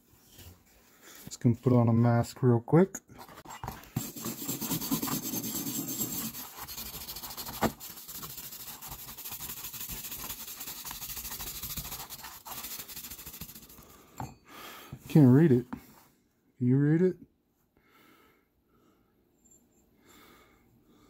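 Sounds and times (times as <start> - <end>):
wire brush scrubbing metal: 4.0 - 13.8.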